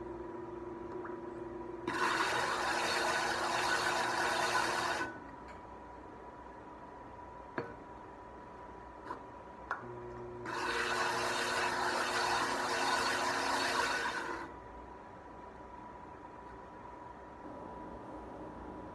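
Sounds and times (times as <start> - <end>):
pot grinding on spinning wheel: 1.9 - 5.1, 10.5 - 14.5
steady hum: 11.6 - 18.9.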